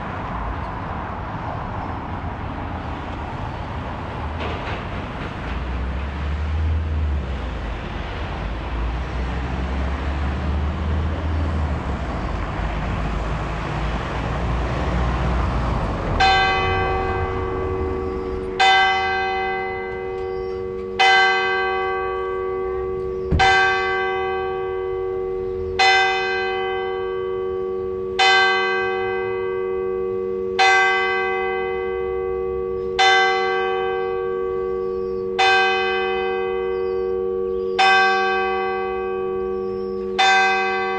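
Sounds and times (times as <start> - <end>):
road traffic passing: 0.0 - 40.9
church bell striking: 16.0 - 40.9.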